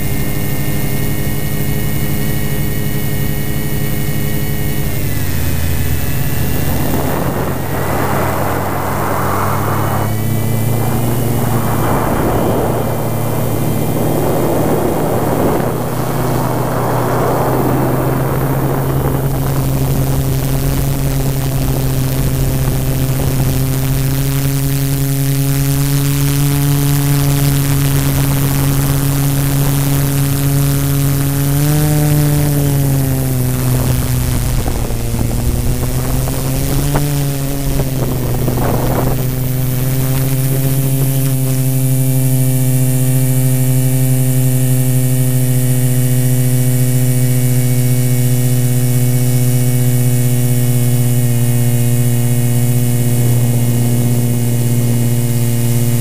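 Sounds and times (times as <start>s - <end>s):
drone motors whining: 1.5s - 20.9s
rushing noise: 4.9s - 19.2s.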